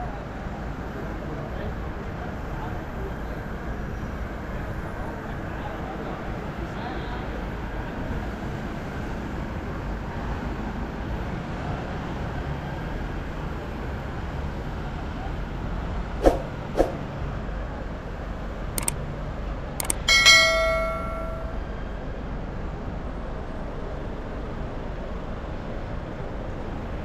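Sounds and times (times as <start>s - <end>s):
city street traffic: 0.0s - 27.0s
clicks: 19.8s - 21.6s
ringing metallic strike: 19.9s - 21.8s.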